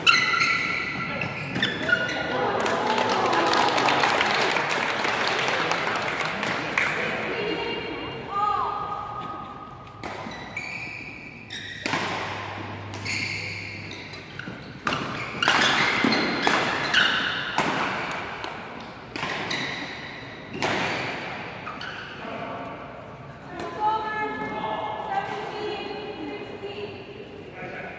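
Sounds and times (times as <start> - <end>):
shoe squeaks: 0.0 - 2.3, 10.2 - 11.9, 12.7 - 17.4, 19.5 - 20.2, 21.6 - 22.2
rackets striking shuttlecock: 9.8 - 10.6, 11.4 - 21.6.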